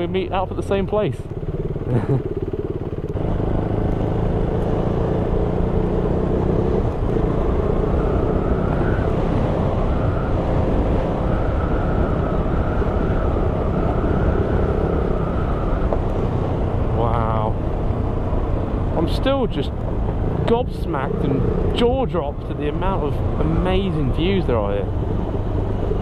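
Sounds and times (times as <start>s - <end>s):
motorcycle engine running: 0.0s - 26.0s
wind noise on microphone: 6.8s - 18.8s.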